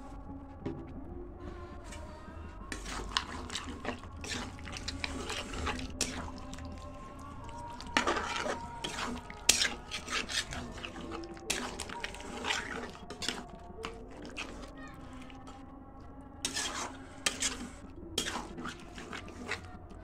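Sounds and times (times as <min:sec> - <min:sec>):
wet sloppy stirring: 0:00.7 - 0:20.0
spatula scraping metal pan: 0:02.7 - 0:15.3, 0:16.4 - 0:19.7.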